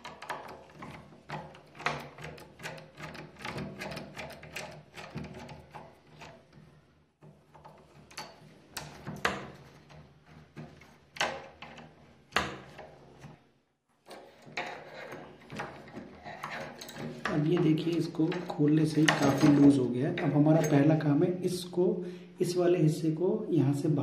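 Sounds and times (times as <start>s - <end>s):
screwdriver clicking and scraping metal: 0.0s - 6.5s, 14.0s - 21.0s
lock body rattling: 14.2s - 21.0s.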